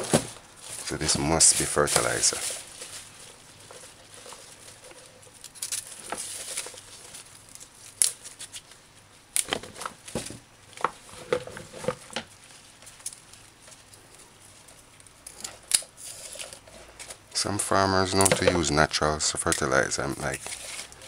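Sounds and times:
leaves rustling: 0.0s - 21.0s
plant stems snapping: 7.4s - 8.6s, 15.0s - 15.9s.

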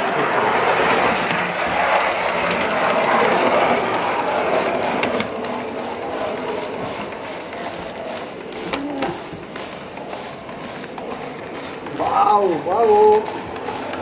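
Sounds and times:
steam hissing: 0.0s - 14.0s
steam locomotive exhaust beating: 0.0s - 14.0s.

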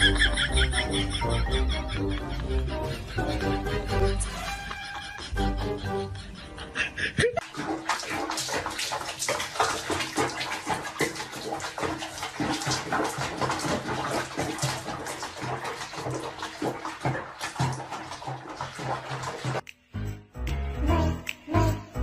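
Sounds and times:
bath water splashing and sloshing: 7.4s - 19.7s.

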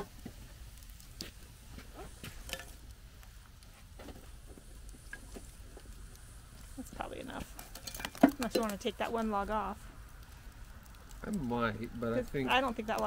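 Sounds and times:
wood fire crackling: 0.0s - 13.0s
coals knocking on metal lid: 7.3s - 9.2s.

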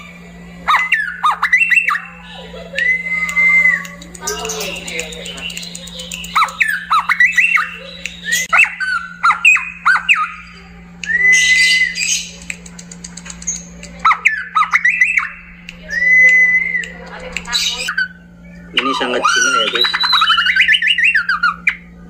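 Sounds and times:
bird singing whistled notes: 2.8s - 10.4s, 11.0s - 12.3s, 17.8s - 21.6s.

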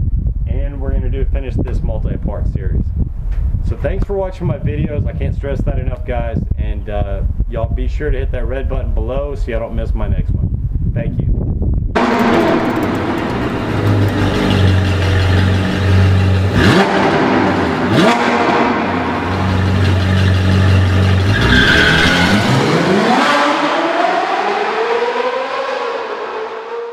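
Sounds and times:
engine revving: 12.0s - 26.9s
sports car engine droning: 12.0s - 26.9s.

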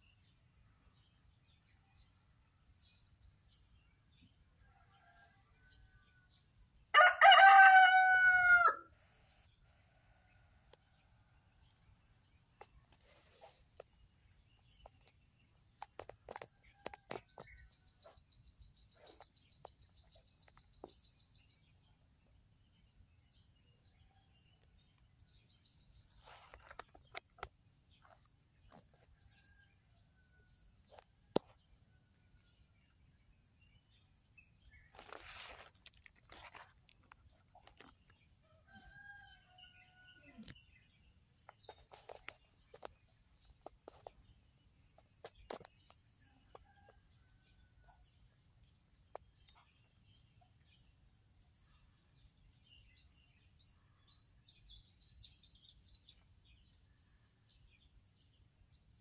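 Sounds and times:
rooster crowing: 6.9s - 8.9s
clicks and rustles: 34.9s - 38.2s.

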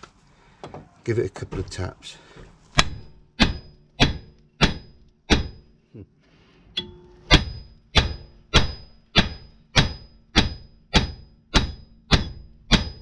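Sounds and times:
hammer striking steel: 2.8s - 5.8s, 6.8s - 13.0s.

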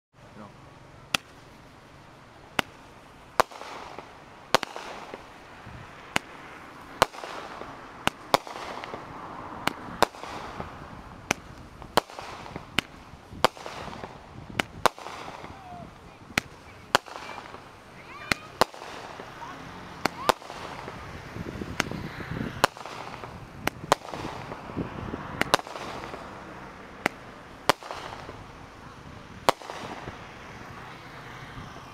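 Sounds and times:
fireworks hissing: 0.4s - 31.9s
fireworks bangs: 1.1s - 31.9s.

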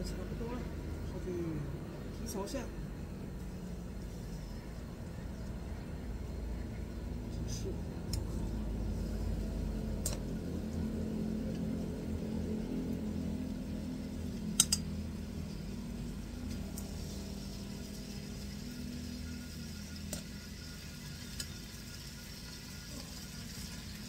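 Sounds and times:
pan frying rumble: 3.0s - 24.0s
metal tongs clicking: 14.6s - 14.9s.

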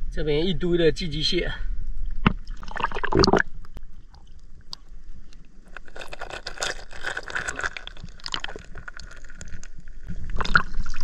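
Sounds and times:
shells and stones crunching: 5.6s - 10.0s.

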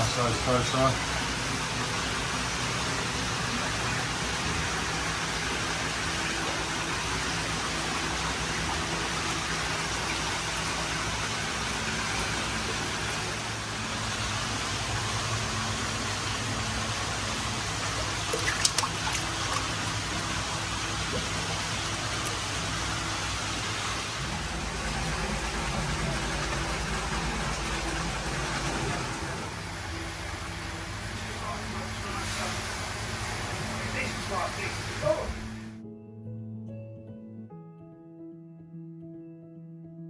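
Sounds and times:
low steady hum: 5.5s - 35.8s
water rushing into vat: 17.1s - 28.7s
fish splashing in water: 18.0s - 20.0s.

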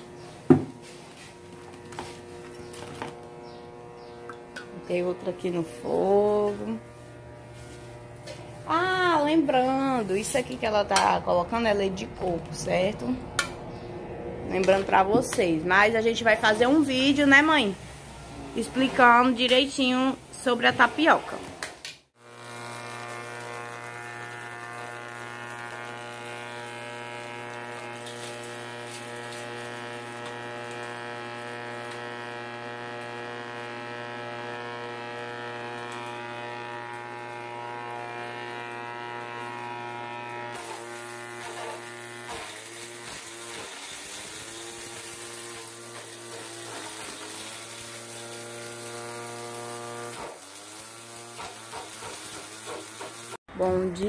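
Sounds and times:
chopper-grinder motor whine: 0.0s - 53.4s.

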